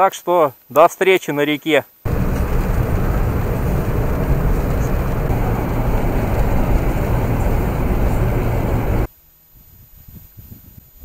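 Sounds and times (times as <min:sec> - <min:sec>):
car road noise from inside: 0:02.1 - 0:09.1.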